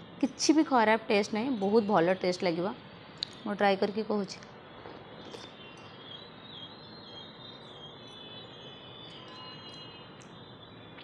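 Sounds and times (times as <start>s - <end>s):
faint background noise: 0.0s - 11.0s
high-pitched chirping: 5.1s - 11.0s.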